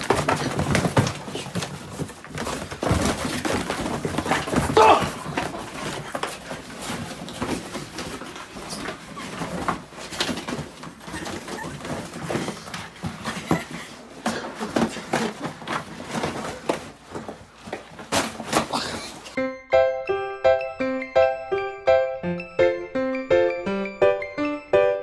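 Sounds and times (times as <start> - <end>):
dog and person scuffling: 0.0 - 19.4.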